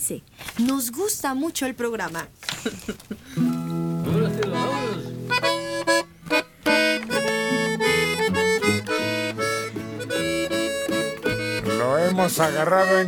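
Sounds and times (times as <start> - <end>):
acoustic guitars strumming: 3.2 - 13.0
button accordion lively melody: 3.8 - 13.0.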